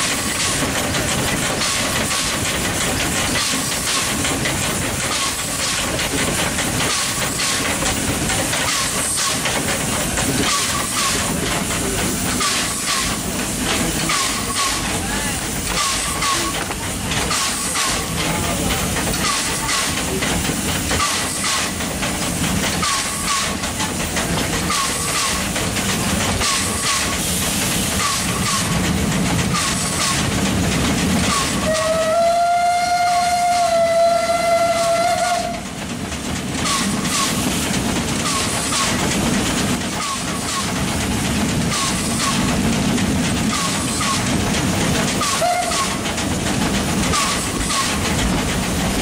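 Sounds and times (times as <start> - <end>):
steam locomotive chuffing: 0.0 - 49.0
steam whistle blast: 31.4 - 35.6, 45.3 - 46.0.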